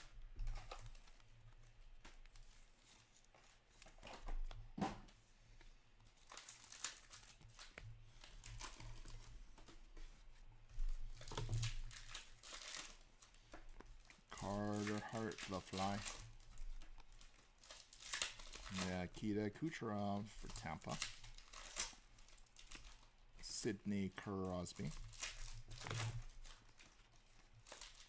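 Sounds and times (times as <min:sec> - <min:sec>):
cards rustling: 0:00.0 - 0:04.6, 0:05.3 - 0:28.0
wrappers crinkling and tearing: 0:06.0 - 0:09.4, 0:11.0 - 0:28.0.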